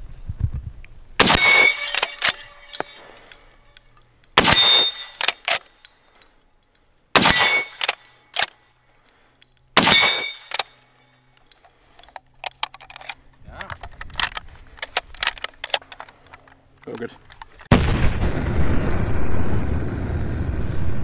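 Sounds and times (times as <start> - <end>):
rifle shots: 1.2 - 2.9, 4.4 - 5.6, 7.2 - 8.5, 9.8 - 10.6
metallic rifle bolt clacks: 1.3 - 8.6, 9.4 - 17.7.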